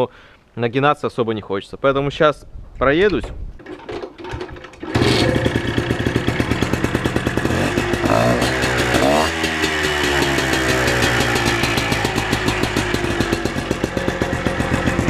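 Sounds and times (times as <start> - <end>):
two-stroke motorcycle engine revving: 4.8 - 15.0.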